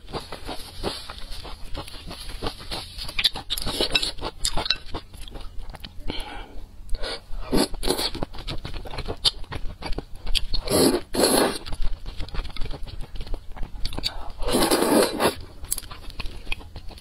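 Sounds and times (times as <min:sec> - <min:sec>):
slurping noodles: 0:10.6 - 0:11.6, 0:14.4 - 0:15.4.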